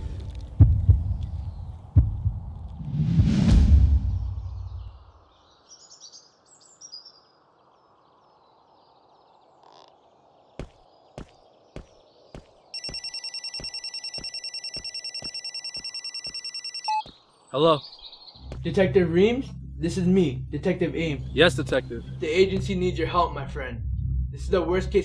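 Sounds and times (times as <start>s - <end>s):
birds chirping: 4.4s - 23.4s
footsteps on paving: 10.6s - 17.3s
mobile phone ringing: 12.8s - 17.1s.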